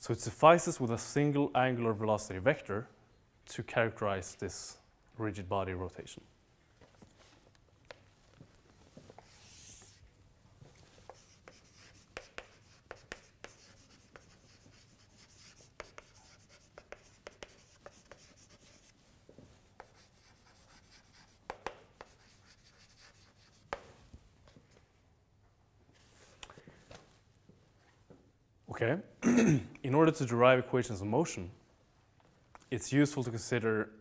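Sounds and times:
chalk scratching on blackboard: 9.1 - 10.0, 10.9 - 19.1, 19.7 - 23.9.

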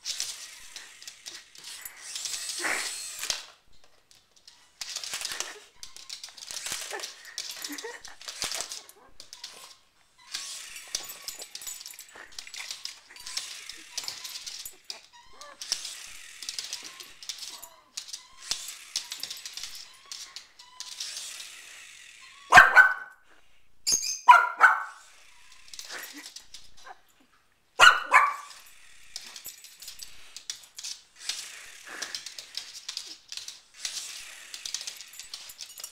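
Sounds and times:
small dog barking: 22.5 - 23.1, 24.3 - 25.0, 27.8 - 28.6.

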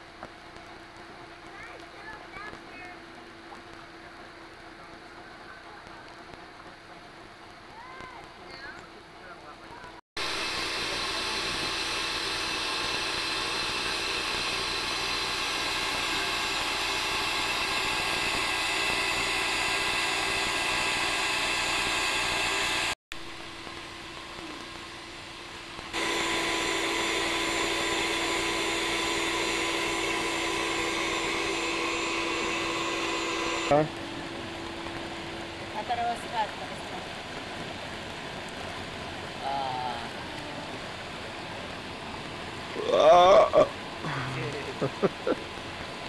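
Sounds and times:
even hum: 0.0 - 46.0
fountain water splashing: 0.5 - 22.6, 33.7 - 46.0.

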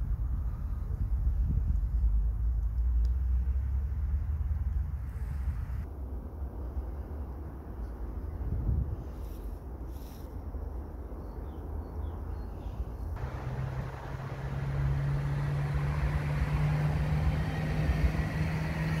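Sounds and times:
low outdoor rumble: 0.0 - 19.0
vehicle engine passing: 13.2 - 19.0.

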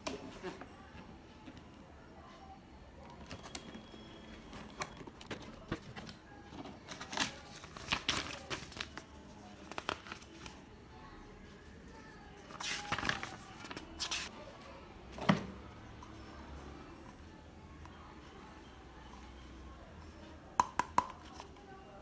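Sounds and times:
paper rustling: 4.5 - 10.6, 12.4 - 14.3.

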